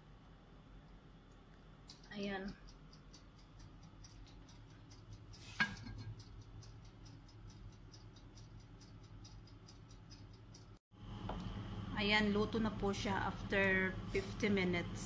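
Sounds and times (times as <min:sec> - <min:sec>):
low steady hum: 0:00.0 - 0:15.0
oven timer ticking: 0:01.8 - 0:10.8.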